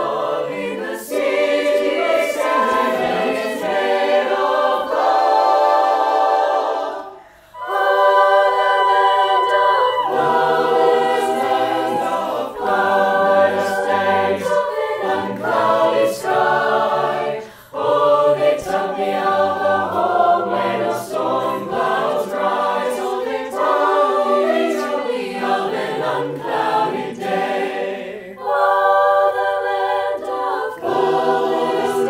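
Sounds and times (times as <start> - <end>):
mixed choir singing in harmony: 0.0 - 32.0.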